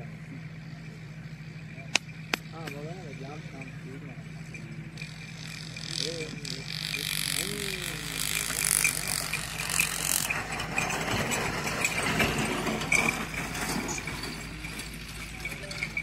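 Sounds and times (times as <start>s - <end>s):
cart and hooves clattering: 0.0s - 16.0s.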